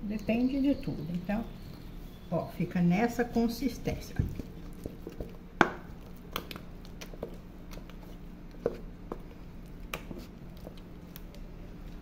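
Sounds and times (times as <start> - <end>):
dough squelching in a bowl: 0.0 - 12.0.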